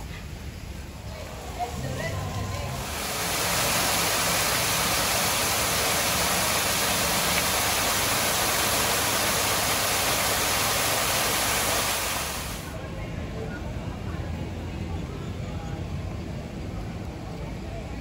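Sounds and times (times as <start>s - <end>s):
waterfall rushing into pool: 1.0s - 12.8s.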